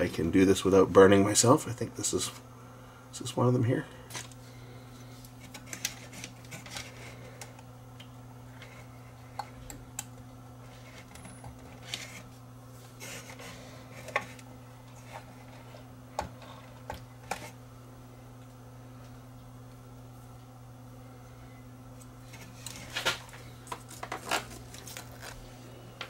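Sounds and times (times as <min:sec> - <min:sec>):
low electrical hum: 0:00.0 - 0:26.0.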